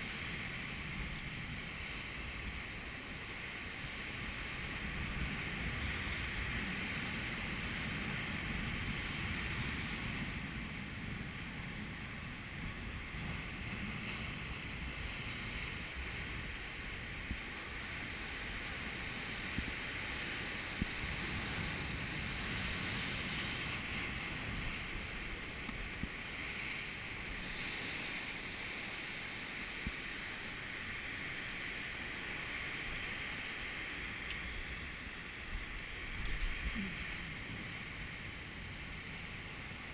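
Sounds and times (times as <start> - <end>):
surf breaking over rocks: 0.0 - 39.9
wind on microphone: 0.0 - 39.9
faint clicks: 34.2 - 34.5, 36.1 - 36.8.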